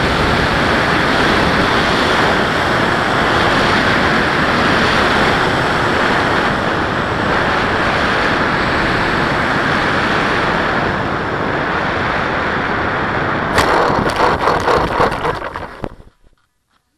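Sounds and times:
airflow rushing over camera: 0:13.5 - 0:16.4.

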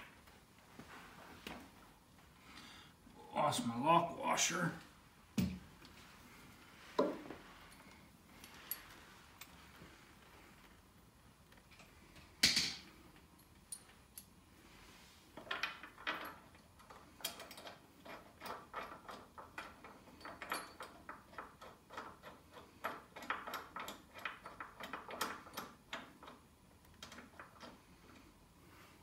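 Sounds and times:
metal bolt clicks and scrapes: 0:15.4 - 0:28.2.

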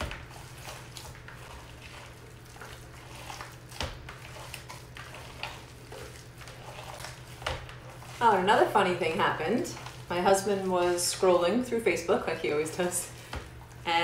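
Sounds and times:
hands squishing meat: 0:00.0 - 0:08.7.

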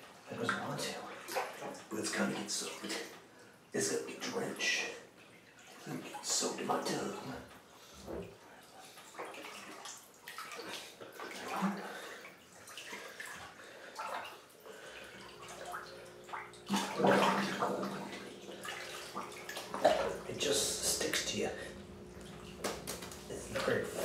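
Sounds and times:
bathwater sloshing and splashing: 0:00.0 - 0:24.0.

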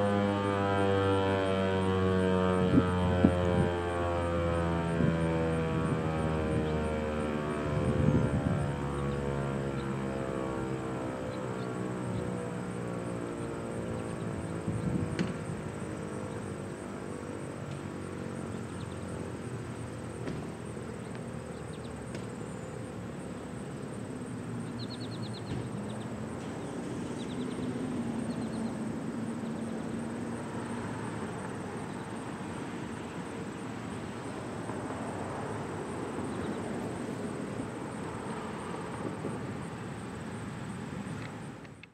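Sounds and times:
siren winding down: 0:00.0 - 0:16.6
constant high whine: 0:00.0 - 0:41.9.

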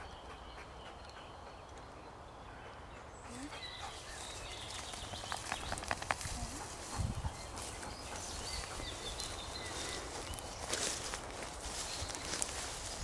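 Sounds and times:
faint birdsong: 0:00.0 - 0:13.0
footsteps in long grass: 0:04.0 - 0:13.0.

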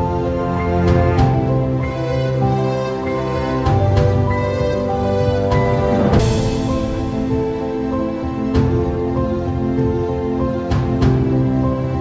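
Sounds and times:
percussive hit: 0:05.5 - 0:09.3.

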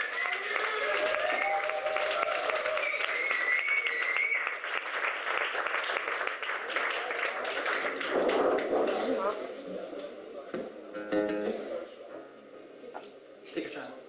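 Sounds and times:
cheering voices: 0:00.0 - 0:04.6
audience applauding: 0:00.0 - 0:09.1.

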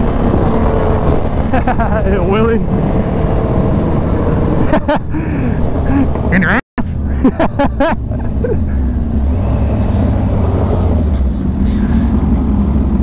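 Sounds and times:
wind noise on microphone: 0:00.0 - 0:01.6.

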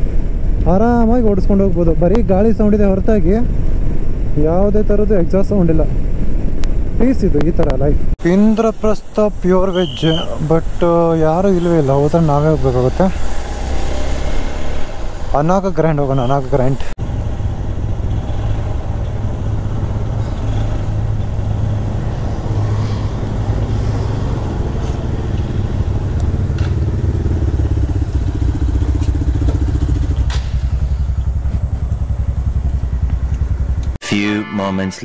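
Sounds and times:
motorcycle engine running: 0:23.1 - 0:34.0.

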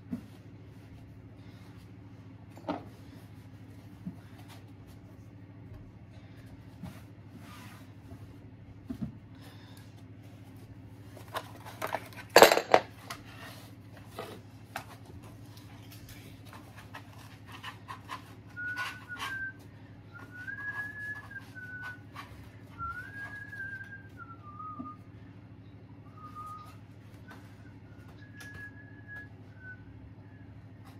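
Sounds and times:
knocks and clatter of handling: 0:11.2 - 0:13.4
person whistling a tune: 0:18.5 - 0:25.2, 0:26.0 - 0:30.5.

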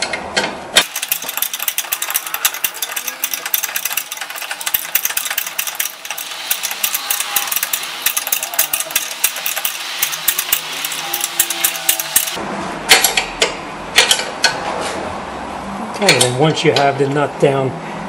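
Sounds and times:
ratcheting wrench clicking: 0:00.8 - 0:12.4
metallic clicks: 0:00.8 - 0:13.2.

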